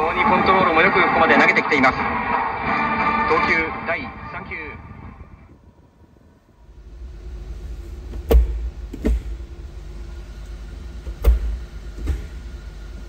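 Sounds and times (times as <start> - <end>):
sharp knocks: 8.1 - 9.5, 11.1 - 12.4.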